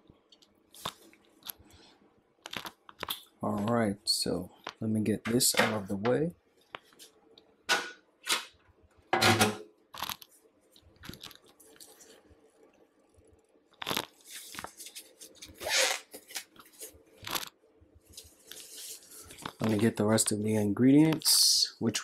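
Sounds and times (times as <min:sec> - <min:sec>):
kitchen rustles and scrapes: 0:18.0 - 0:19.9.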